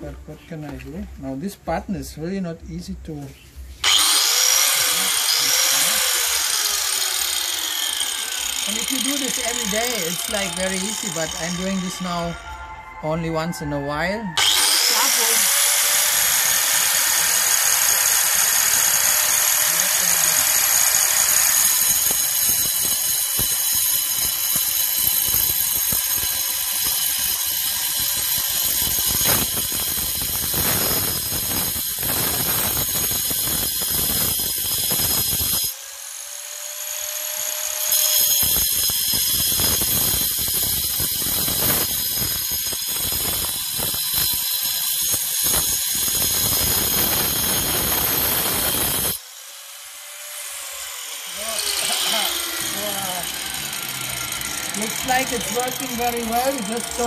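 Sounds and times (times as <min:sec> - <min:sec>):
grinder cutting stone: 0:03.8 - 0:12.4, 0:14.4 - 0:57.0.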